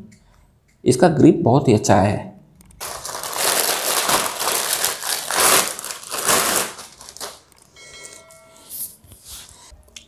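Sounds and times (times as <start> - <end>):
plastic wrapping crinkling: 2.8 - 7.8.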